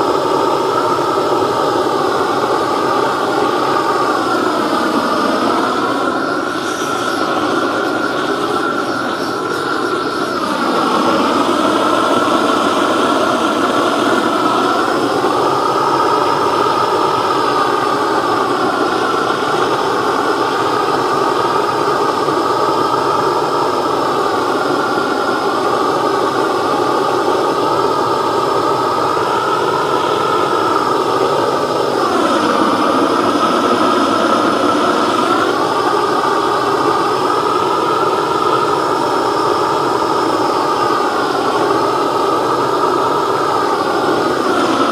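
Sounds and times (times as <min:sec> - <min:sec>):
blowtorch roaring: 0:00.0 - 0:44.9.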